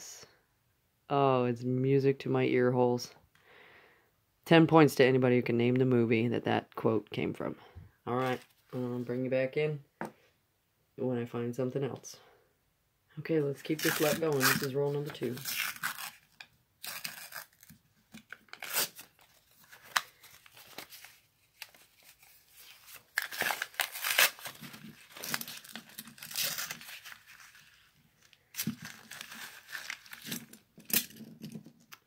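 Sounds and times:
paper wrapper tearing: 13.6 - 31.6.

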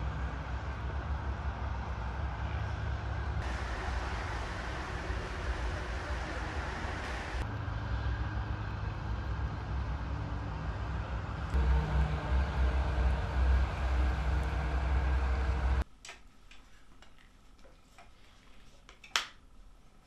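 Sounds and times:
faint engine hum: 0.0 - 15.8
low rumble and hiss: 0.0 - 17.7.

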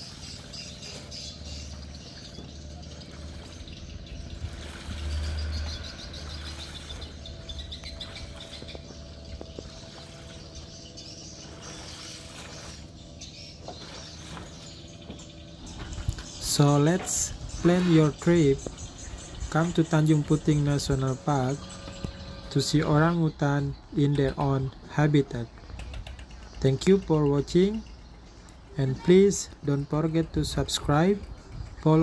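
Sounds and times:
water splashing and dripping: 0.0 - 18.8
wet tarp hauled against boat: 0.0 - 22.8
birds chirping: 0.0 - 32.0
steady low hum: 0.0 - 32.0.

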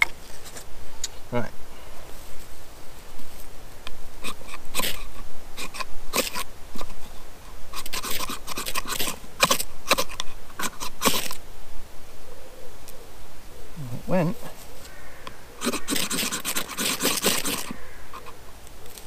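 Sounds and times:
ferro rod scraping: 4.2 - 7.1, 7.7 - 11.4, 15.6 - 18.4.

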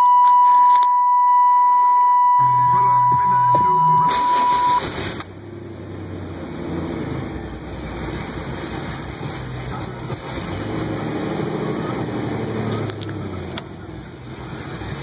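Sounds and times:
steady electronic beep: 0.0 - 4.8
car engine running: 2.2 - 15.0.

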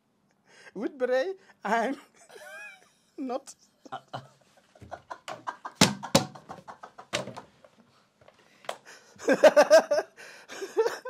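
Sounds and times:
men laughing: 1.9 - 3.0, 3.8 - 7.5, 8.9 - 11.0
plastic bottle smacks: 5.8 - 6.5.

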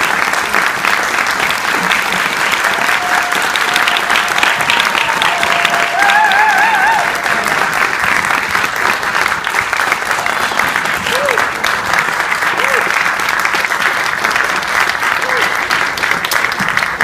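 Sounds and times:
audience applauding: 0.0 - 17.0
wavering whoop: 5.0 - 7.5.

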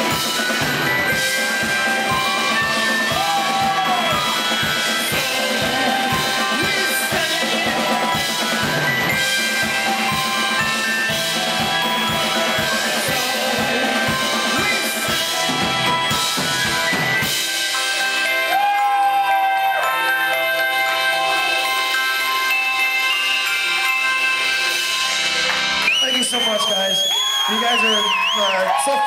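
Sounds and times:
drum kit beat: 0.0 - 19.1
rock band playing: 0.0 - 28.8.

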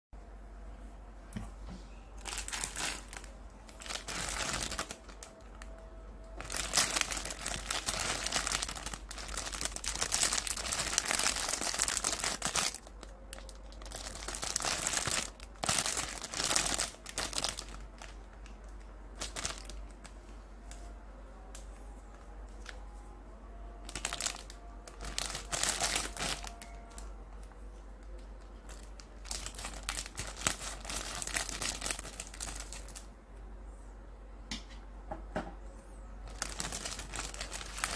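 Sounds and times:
plastic packet crinkling: 2.2 - 20.1, 23.8 - 33.1, 36.2 - 37.9.

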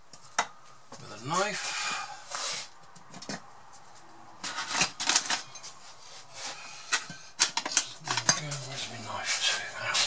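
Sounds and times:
kitchen utensils clattering: 4.4 - 5.8, 6.8 - 8.9.

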